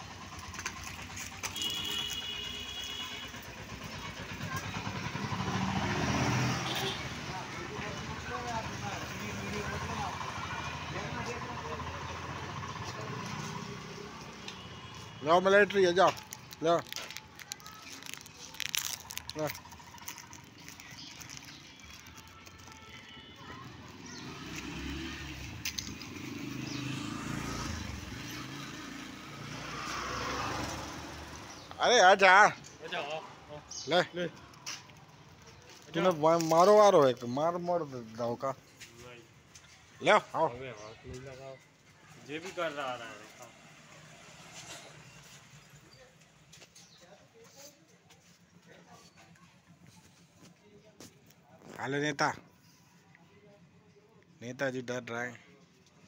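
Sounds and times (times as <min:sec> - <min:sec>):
motor scooter engine passing: 0:03.3 - 0:14.4, 0:23.4 - 0:31.7.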